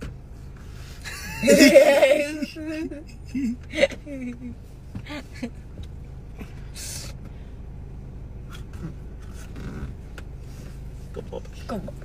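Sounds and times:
low rumble inside car cabin: 0:00.0 - 0:12.0.

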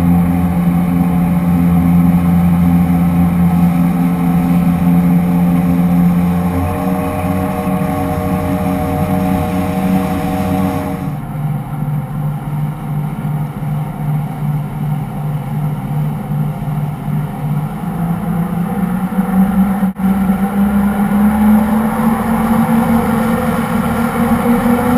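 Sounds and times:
water rushing along hull: 0:00.0 - 0:11.8, 0:17.9 - 0:24.9
motorboat engine running: 0:00.0 - 0:24.9.

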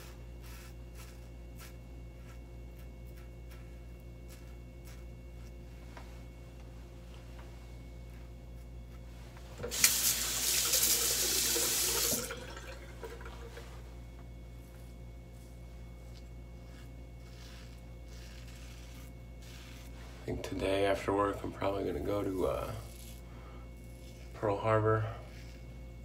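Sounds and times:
sink tap running: 0:09.6 - 0:13.5.

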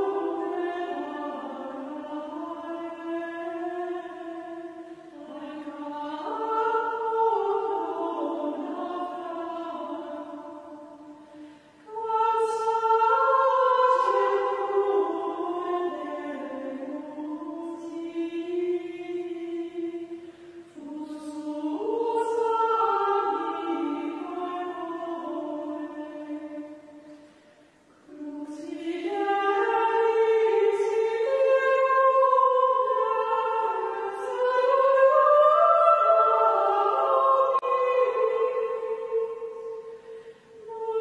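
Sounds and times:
women's choir chanting in unison: 0:00.0 - 0:27.1, 0:28.1 - 0:41.0
breaths between phrases: 0:11.2 - 0:11.8, 0:39.9 - 0:40.6.

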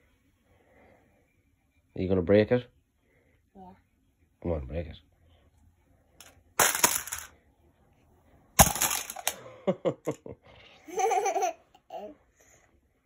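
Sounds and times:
child's voice: 0:03.5 - 0:03.8
plastic tiles clattering down: 0:06.2 - 0:07.3, 0:08.6 - 0:09.4.

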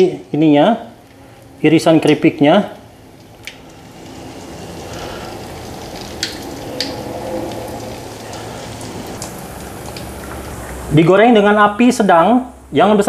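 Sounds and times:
dough sizzling in hot oil: 0:00.8 - 0:11.0.

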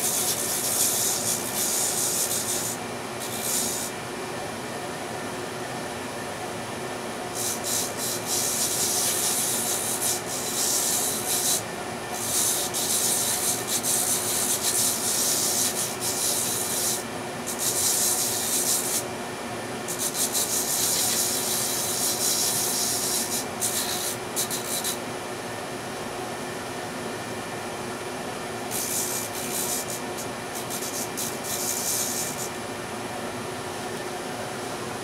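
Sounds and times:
sanding drum hissing against wood: 0:00.0 - 0:04.0, 0:07.3 - 0:19.1, 0:19.8 - 0:25.0, 0:28.7 - 0:32.5
drum sander motor hum: 0:00.0 - 0:35.0.

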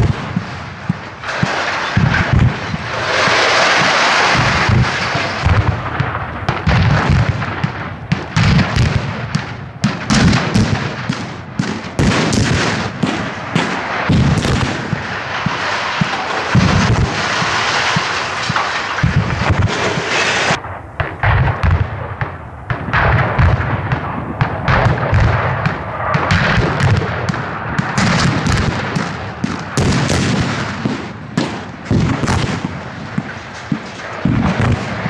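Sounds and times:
dense rushing noise: 0:00.0 - 0:08.8, 0:12.8 - 0:30.1
explosive charges cracking and booming: 0:00.0 - 0:35.0.

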